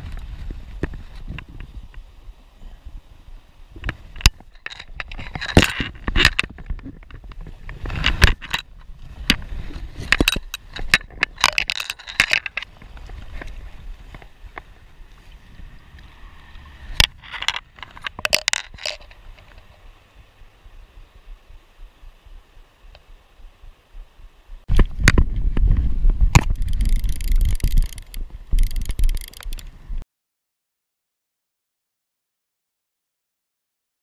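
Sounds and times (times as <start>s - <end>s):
creek flowing: 0.0s - 25.5s.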